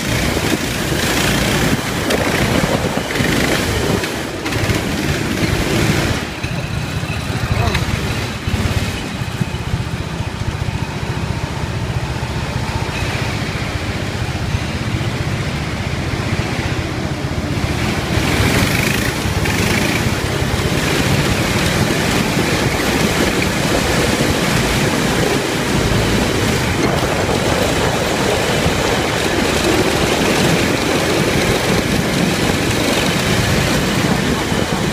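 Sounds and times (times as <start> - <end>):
wind on microphone: 0.0 - 6.6, 15.9 - 34.9
small ride-on car running: 0.0 - 34.9.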